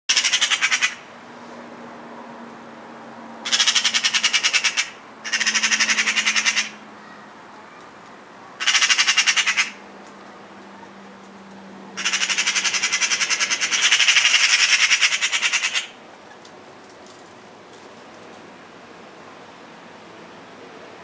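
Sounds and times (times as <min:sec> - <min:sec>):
magpies rattling chatter: 0:00.1 - 0:01.0, 0:03.4 - 0:07.8, 0:08.5 - 0:09.8, 0:12.0 - 0:16.0.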